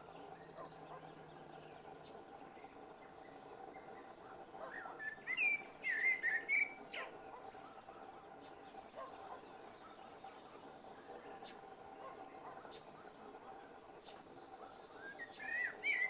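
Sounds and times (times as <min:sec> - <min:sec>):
blackbird singing: 0:03.0 - 0:07.1, 0:14.7 - 0:16.0.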